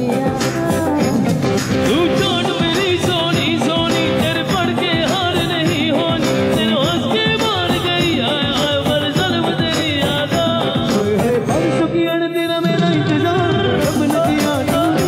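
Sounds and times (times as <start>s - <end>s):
drum kit beat: 0.0s - 15.0s
keyboard melody: 0.0s - 15.0s
person singing: 0.0s - 15.0s.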